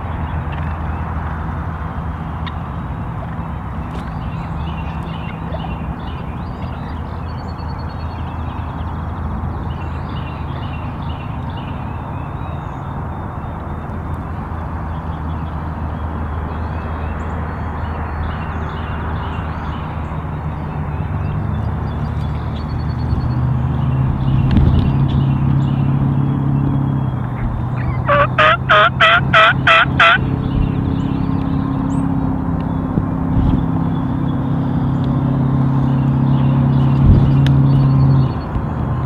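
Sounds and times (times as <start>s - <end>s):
road traffic rumble: 0.0s - 39.0s
songbirds chirping: 0.0s - 39.0s
bird trill: 25.0s - 32.1s.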